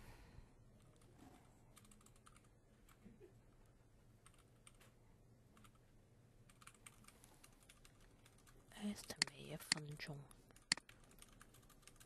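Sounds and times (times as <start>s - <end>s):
keyboard typing: 1.7s - 3.0s, 4.2s - 4.9s, 6.5s - 12.0s.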